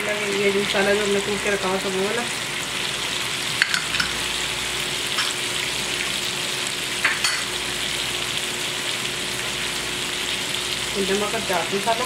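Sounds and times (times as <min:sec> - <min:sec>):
chicken sizzling in hot oil: 0:00.0 - 0:12.0.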